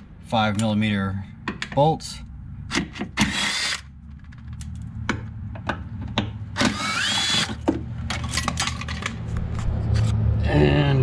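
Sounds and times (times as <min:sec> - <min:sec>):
cordless power tool whirring: 0:02.8 - 0:03.9, 0:06.6 - 0:07.6.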